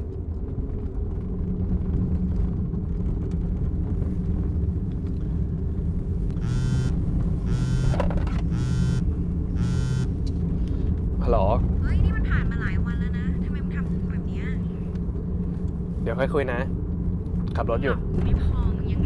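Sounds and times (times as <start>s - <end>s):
car engine rumble inside cabin: 0.0s - 19.0s
mobile phone ringing: 6.4s - 9.0s, 9.6s - 10.1s.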